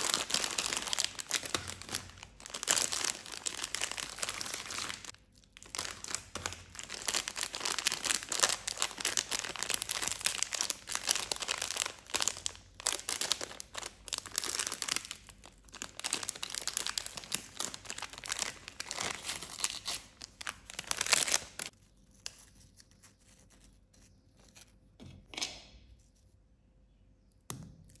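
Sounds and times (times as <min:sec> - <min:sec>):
snack pouch crinkling and tearing: 0:00.0 - 0:21.7.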